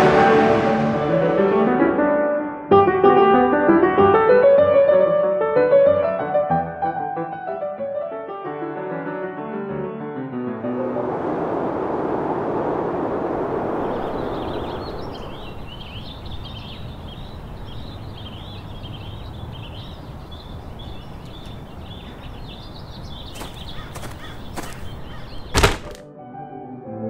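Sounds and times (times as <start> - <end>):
rushing noise: 10.6 - 16.4
small birds chirping: 13.7 - 26.0.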